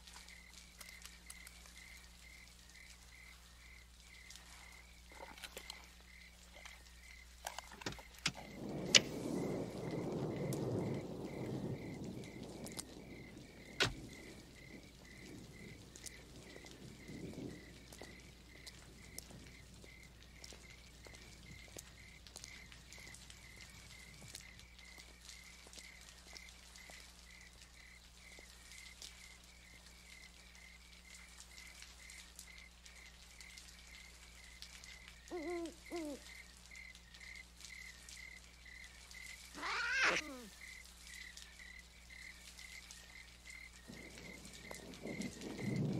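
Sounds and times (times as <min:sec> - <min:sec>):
crickets chirping: 0:00.0 - 0:45.9
animal crying: 0:35.3 - 0:36.3, 0:39.5 - 0:40.6
animal screech falling in pitch: 0:39.6 - 0:40.5.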